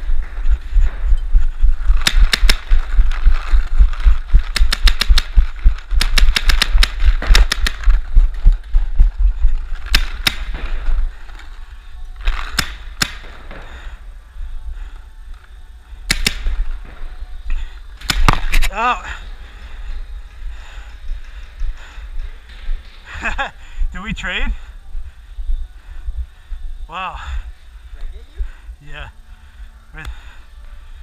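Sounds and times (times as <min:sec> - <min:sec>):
running footsteps thudding: 0:00.0 - 0:11.5
paintball markers firing: 0:02.0 - 0:03.6, 0:04.4 - 0:08.0, 0:09.8 - 0:10.7, 0:12.2 - 0:13.7, 0:16.1 - 0:16.6, 0:18.0 - 0:18.7.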